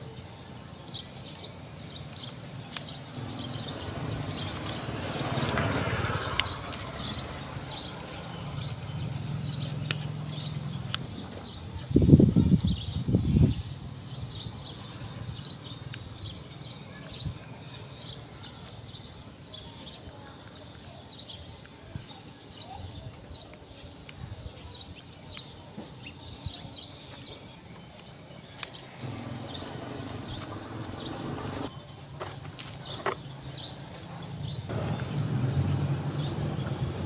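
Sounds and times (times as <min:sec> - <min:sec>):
small birds chirping: 0:00.0 - 0:37.0
handling noise: 0:28.6 - 0:34.1, 0:34.7 - 0:37.0.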